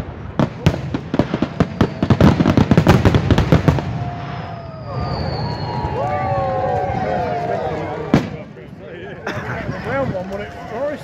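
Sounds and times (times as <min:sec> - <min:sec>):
fireworks bursting and crackling: 0:00.0 - 0:06.9, 0:08.0 - 0:08.6.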